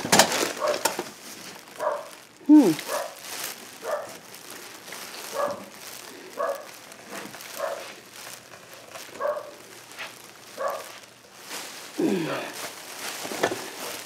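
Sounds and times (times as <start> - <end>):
dog barking: 0.6 - 0.9, 1.8 - 2.2, 2.8 - 3.2, 3.8 - 4.2, 5.3 - 5.7, 6.4 - 6.8, 7.5 - 7.9, 9.2 - 9.6, 10.6 - 11.0.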